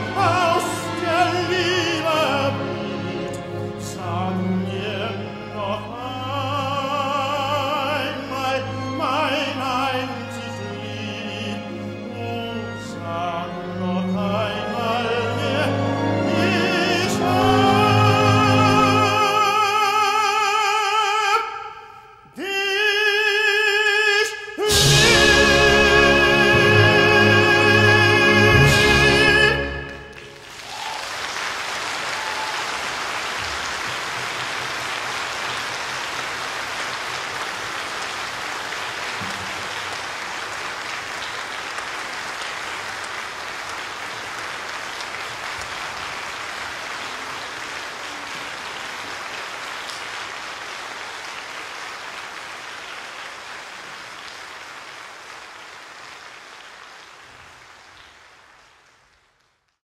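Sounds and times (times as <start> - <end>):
audience applauding: 29.2 - 59.7.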